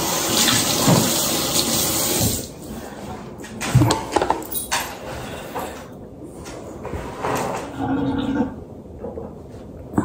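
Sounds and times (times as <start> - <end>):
kitchen tap running: 0.0 - 2.6.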